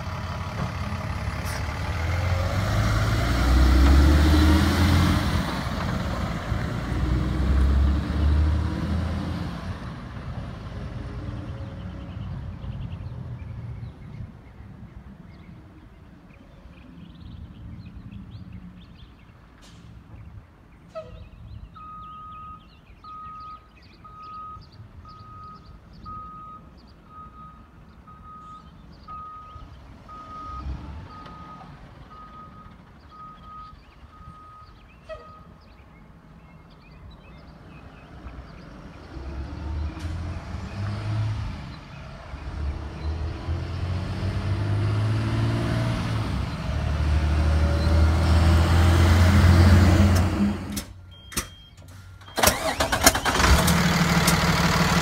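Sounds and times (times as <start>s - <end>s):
diesel truck engine passing: 0.0s - 13.4s, 29.1s - 34.6s, 37.5s - 51.0s, 51.9s - 55.0s
truck backup alarm beeping: 21.7s - 35.6s, 50.7s - 53.7s.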